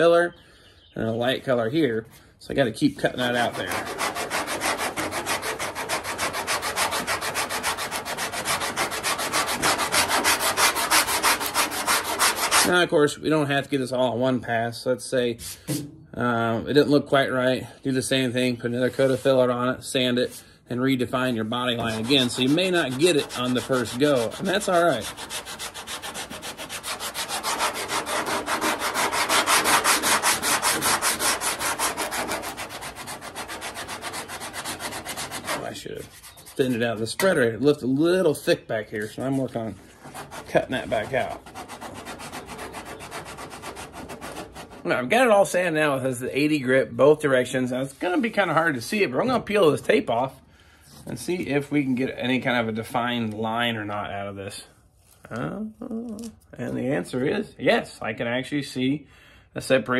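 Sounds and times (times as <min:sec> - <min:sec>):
sandpaper rasping on filler: 0:03.0 - 0:12.8, 0:21.5 - 0:37.0, 0:38.9 - 0:44.9.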